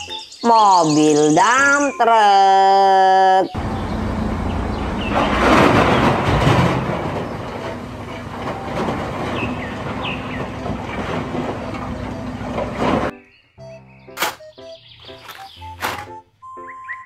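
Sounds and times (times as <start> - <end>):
diesel engine running: 3.6 - 13.1.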